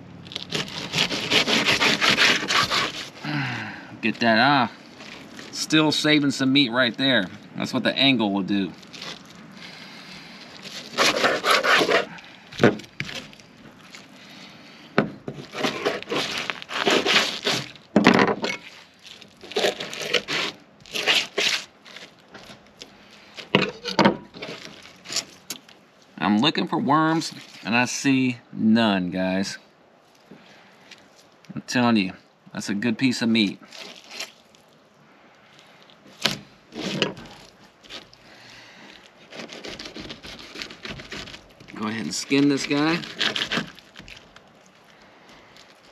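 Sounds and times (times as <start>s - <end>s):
knife scraping fish bones: 0.3s - 3.2s, 10.4s - 14.1s, 15.3s - 17.8s, 18.5s - 22.5s, 36.1s - 38.2s, 38.9s - 44.7s
wet rustle of fish: 4.0s - 17.9s, 18.6s - 23.6s, 24.3s - 26.2s, 27.1s - 28.0s, 30.0s - 31.4s, 33.4s - 45.9s
knife scraping and knocking: 10.7s - 13.2s, 15.3s - 18.8s, 36.2s - 38.0s.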